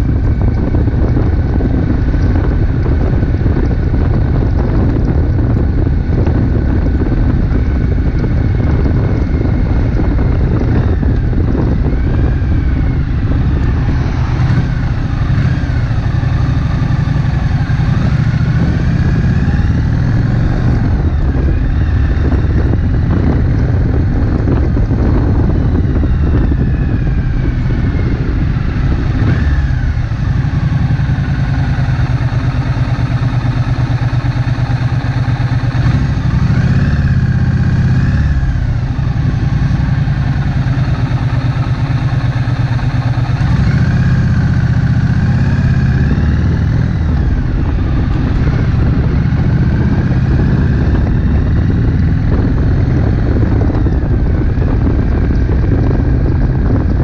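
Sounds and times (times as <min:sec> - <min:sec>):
motorcycle engine running: 0:00.0 - 0:57.0.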